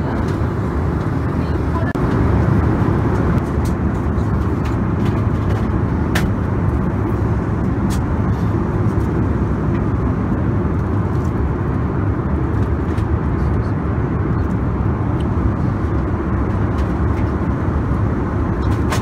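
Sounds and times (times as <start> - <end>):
airliner cabin drone: 0.0 - 19.0.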